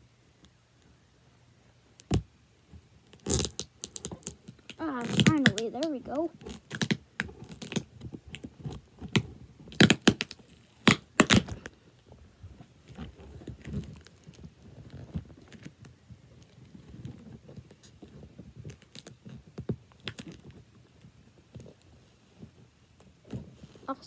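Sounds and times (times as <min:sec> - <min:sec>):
hands handling plastic-wrapped box: 0:03.1 - 0:21.9.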